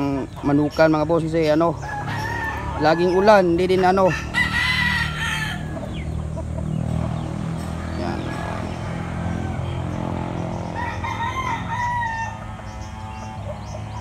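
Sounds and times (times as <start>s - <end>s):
rooster crowing: 1.8s - 5.8s, 8.0s - 13.7s.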